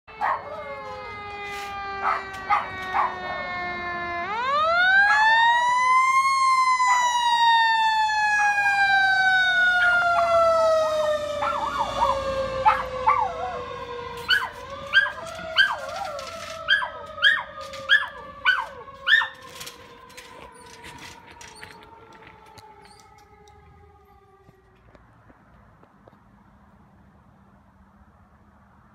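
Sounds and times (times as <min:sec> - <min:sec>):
siren rising and falling: 0:00.1 - 0:25.0
dog barking: 0:00.2 - 0:00.6, 0:02.0 - 0:03.4, 0:11.4 - 0:13.6.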